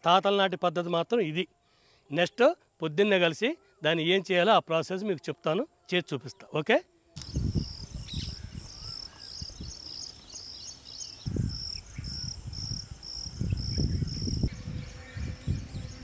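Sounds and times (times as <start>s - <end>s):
insect chirping: 7.0s - 16.0s.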